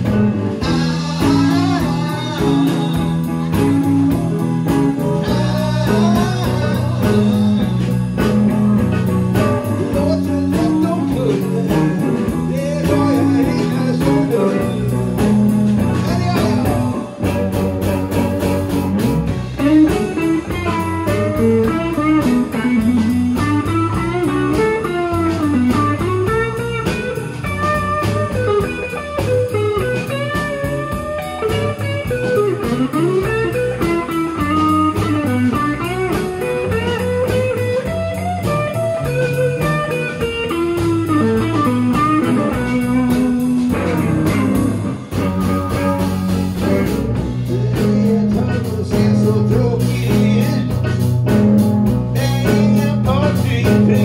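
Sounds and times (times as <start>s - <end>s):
electric guitar solo: 0.0s - 47.5s
blues band playing: 0.0s - 54.0s.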